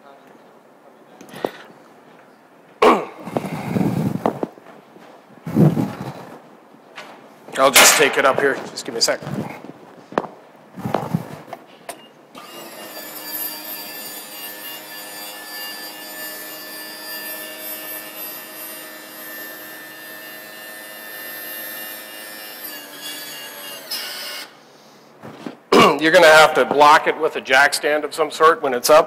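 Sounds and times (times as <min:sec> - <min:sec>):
hydraulic power unit whining: 0:12.3 - 0:20.7.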